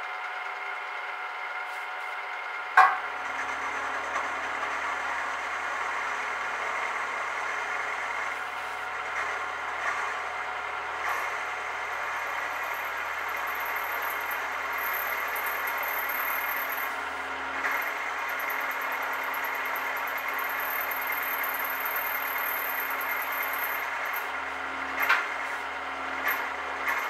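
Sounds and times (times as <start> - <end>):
sharp knock: 2.8 - 3.0.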